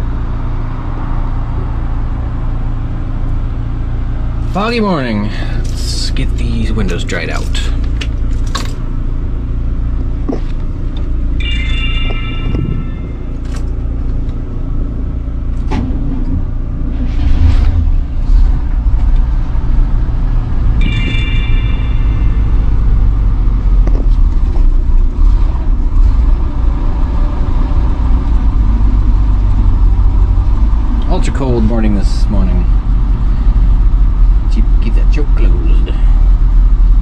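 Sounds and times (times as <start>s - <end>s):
engine idling: 0.0s - 37.0s
short high-pitched tone: 11.4s - 13.6s, 20.7s - 23.2s.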